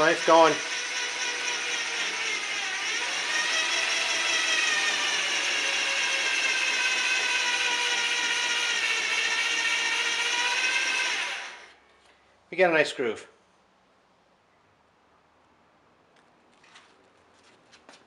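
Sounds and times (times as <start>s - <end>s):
power tool motor whine: 0.0s - 11.8s.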